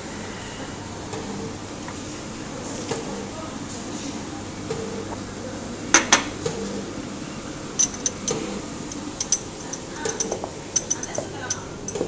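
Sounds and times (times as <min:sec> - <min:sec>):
cup saucer and teaspoon clinking: 0:07.8 - 0:12.0.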